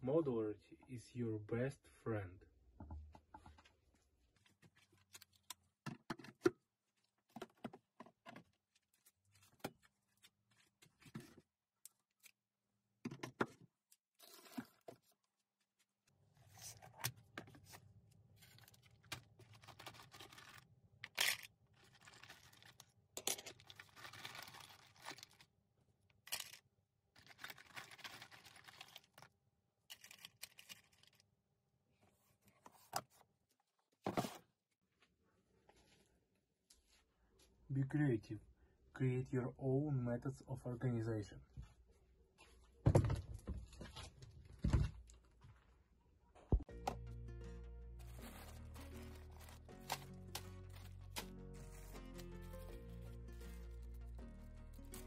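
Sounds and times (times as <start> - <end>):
rummaging through plastic cases: 4.4 - 11.5, 16.4 - 25.4, 27.2 - 29.2, 34.0 - 34.5, 48.0 - 54.1.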